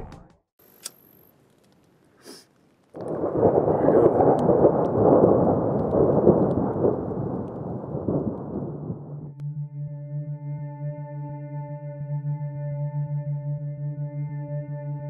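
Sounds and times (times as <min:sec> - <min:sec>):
deep rumble of thunder: 0:03.0 - 0:09.4.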